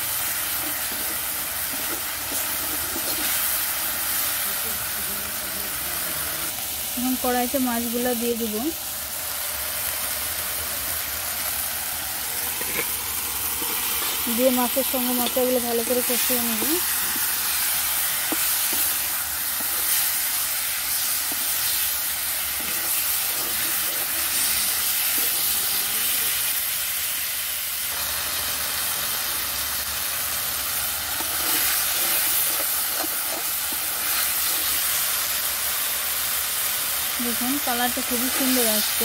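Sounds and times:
fish sizzling in oil: 0.0s - 39.0s
spatula stirring: 0.3s - 3.7s, 12.4s - 25.8s, 31.1s - 35.1s.

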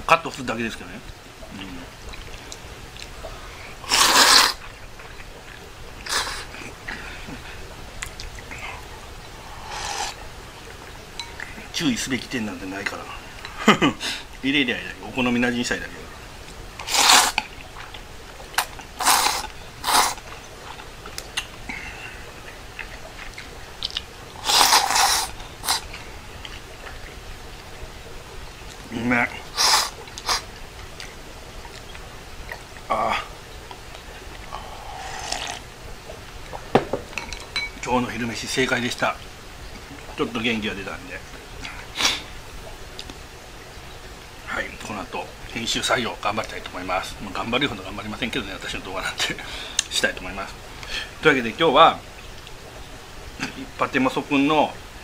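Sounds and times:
noodles slurped: 3.7s - 7.4s, 9.5s - 10.2s, 16.8s - 22.2s, 22.8s - 27.0s, 28.7s - 33.2s, 34.3s - 35.7s
person slurping noodles: 3.8s - 4.7s, 9.4s - 10.2s, 16.8s - 17.4s, 18.6s - 20.2s, 24.4s - 25.9s, 29.5s - 30.5s, 34.5s - 35.6s.

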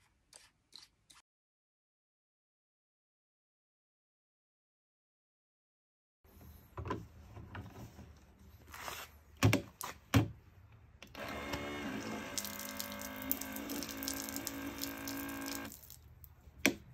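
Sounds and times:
small pump motor running: 11.2s - 15.7s.

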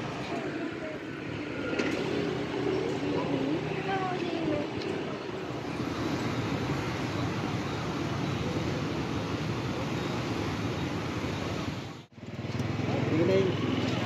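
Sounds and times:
street traffic hum: 0.0s - 14.0s.

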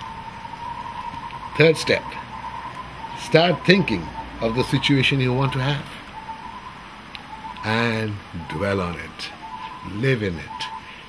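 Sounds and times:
man speaking: 1.6s - 2.2s, 3.2s - 6.0s, 7.6s - 10.8s.

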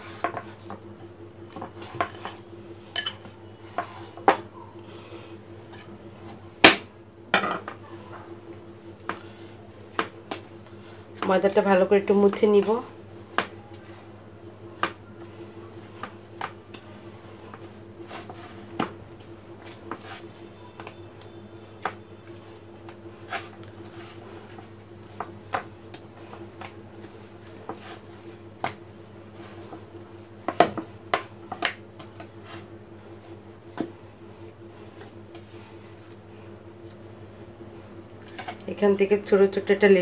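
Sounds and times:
steady hum: 0.0s - 40.0s
dough knocking on wooden board: 13.3s - 13.9s, 30.4s - 32.3s.

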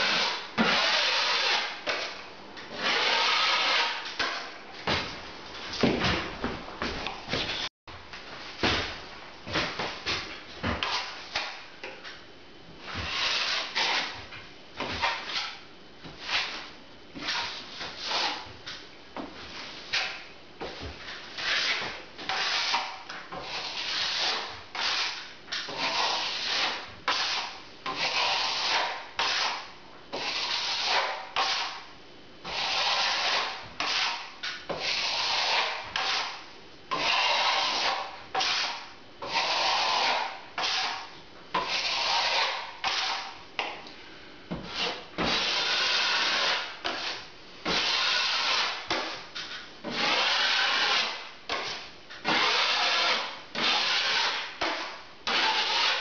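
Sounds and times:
trowel scraping wet plaster: 0.0s - 4.5s, 13.1s - 14.2s, 21.4s - 31.8s, 32.5s - 43.4s, 44.7s - 56.0s.

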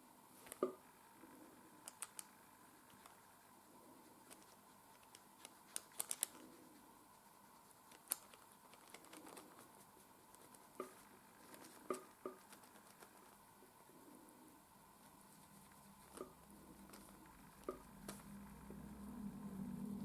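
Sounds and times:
faint clicks and taps on paper: 10.3s - 13.4s, 15.7s - 18.3s.

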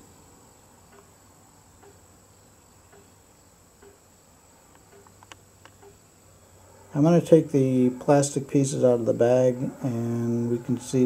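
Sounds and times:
faint high-pitched whine: 0.0s - 11.0s
light clicks: 4.7s - 6.0s.

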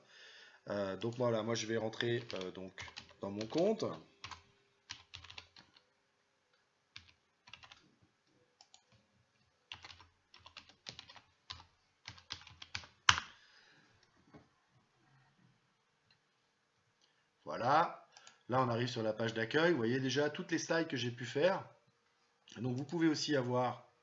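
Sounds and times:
typing on computer keyboard: 2.0s - 5.8s, 7.0s - 7.8s, 8.6s - 9.0s, 9.7s - 13.3s.

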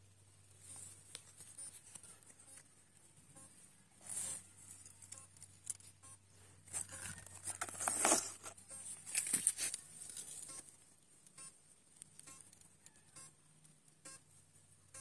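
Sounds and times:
rustling and crackling: 6.6s - 10.9s.

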